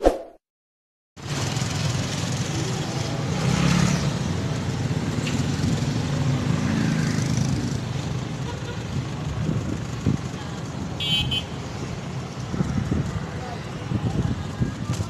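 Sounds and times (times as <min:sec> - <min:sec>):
wind noise on microphone: 0:09.2 - 0:11.0, 0:11.7 - 0:15.0.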